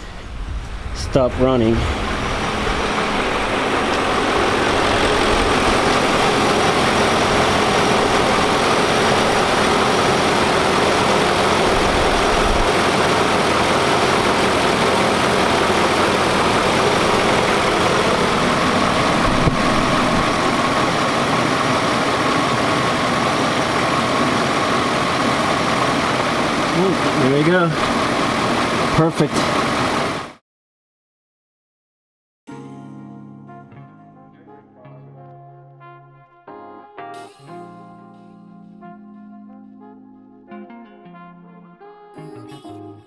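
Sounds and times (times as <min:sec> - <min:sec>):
car engine idling: 0:00.0 - 0:30.4
electric fan rushing air: 0:00.0 - 0:30.4.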